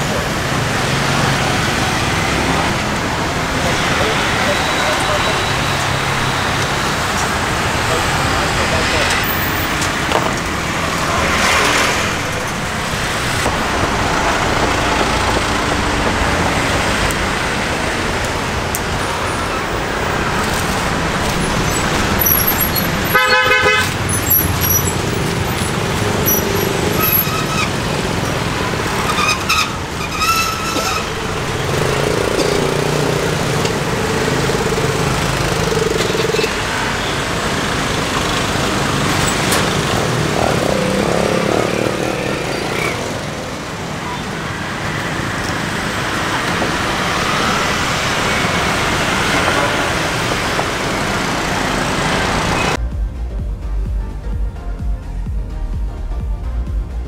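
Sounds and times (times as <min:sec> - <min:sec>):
cars and motorbikes passing: 0:00.0 - 0:57.0
vehicle horn toots: 0:22.2 - 0:25.0.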